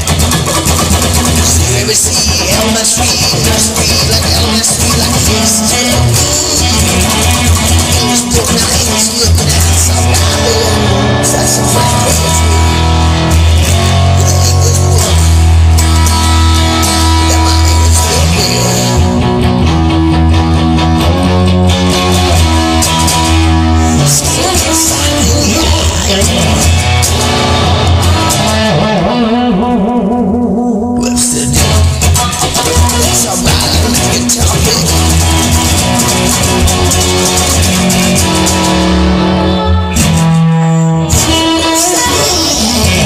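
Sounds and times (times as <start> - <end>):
drum beat: 0.0 - 18.2, 31.4 - 38.9
rock guitar chords: 0.0 - 43.0
steady bass: 0.0 - 43.0.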